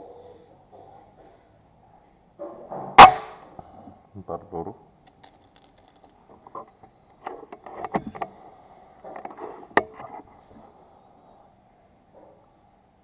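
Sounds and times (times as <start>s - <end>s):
air rifle shot crack: 3.0s - 3.4s
small clicks and knocks: 5.0s - 8.4s.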